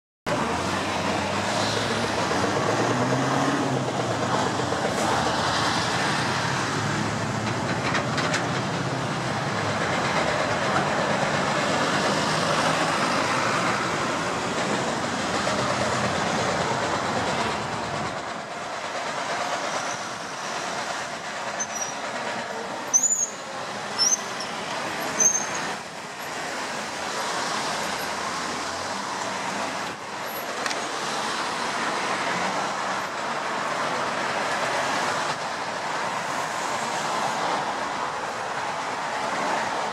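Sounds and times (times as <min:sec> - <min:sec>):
city traffic idling and passing: 0:00.3 - 0:39.9
short high squeals: 0:22.9 - 0:23.4, 0:25.2 - 0:25.7.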